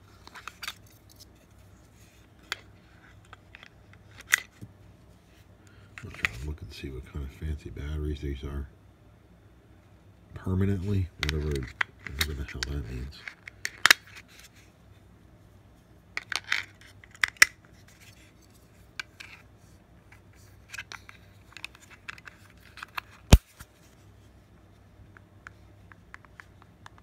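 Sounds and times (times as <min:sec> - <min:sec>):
plastic clicks and rustles: 0:11.2 - 0:14.5, 0:16.2 - 0:19.4, 0:20.1 - 0:23.5.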